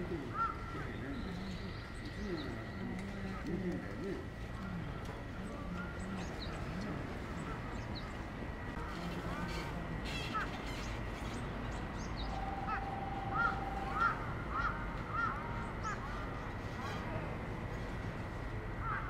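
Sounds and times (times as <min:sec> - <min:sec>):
crows cawing: 0:00.3 - 0:00.9, 0:12.4 - 0:16.9, 0:18.8 - 0:19.0.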